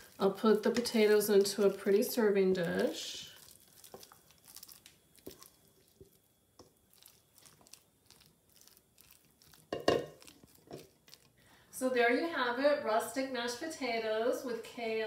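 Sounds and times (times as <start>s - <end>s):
spatula scraping mashed potatoes: 0.0s - 11.3s
dish clatter: 9.7s - 10.8s.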